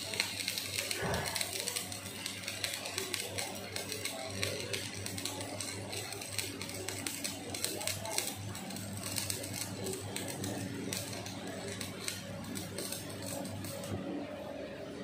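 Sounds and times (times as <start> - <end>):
arc welding crackling: 0.0 - 15.0
steady low hum: 0.7 - 1.9.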